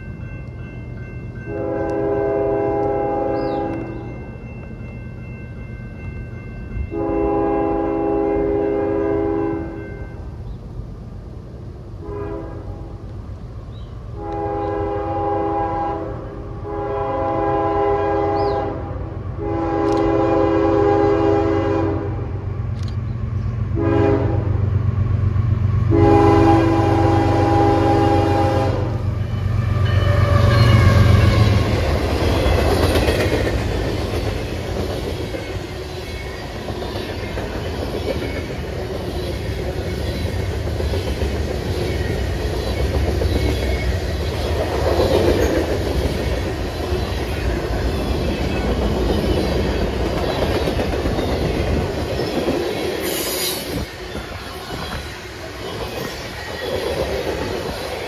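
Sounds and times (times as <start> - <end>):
locomotive engine passing: 0.0 - 58.0
locomotive air horn: 1.5 - 3.8, 6.9 - 9.8, 12.0 - 12.9, 14.2 - 22.3, 23.8 - 24.6, 25.9 - 31.7
train wheels clattering: 30.0 - 58.0.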